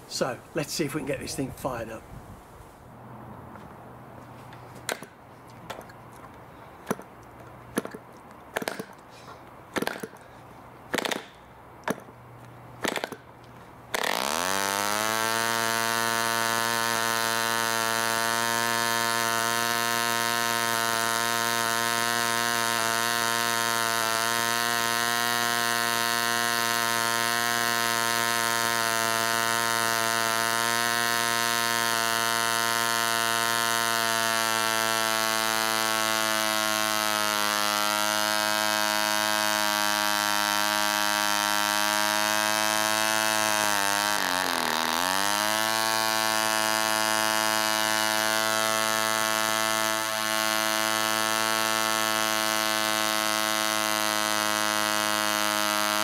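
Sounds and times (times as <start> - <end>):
model aero engine buzzing: 13.9 - 56.0.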